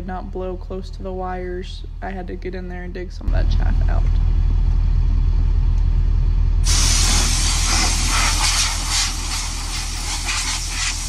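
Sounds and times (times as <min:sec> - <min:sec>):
engine running: 0:03.4 - 0:08.4
compressed air hissing: 0:06.6 - 0:11.0.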